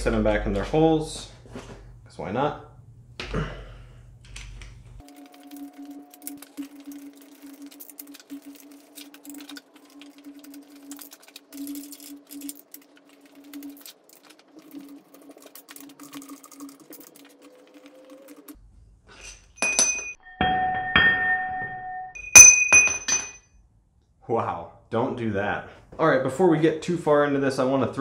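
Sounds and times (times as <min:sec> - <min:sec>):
metal tools clinking on engine: 0:19.2 - 0:20.2, 0:22.2 - 0:23.4.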